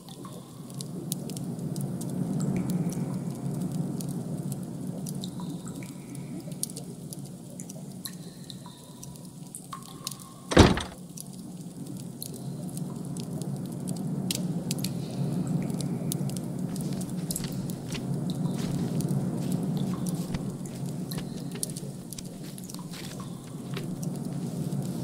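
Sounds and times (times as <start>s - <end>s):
drip-like ticks: 0.0s - 10.4s, 11.1s - 24.3s
loud thump: 10.5s - 11.0s.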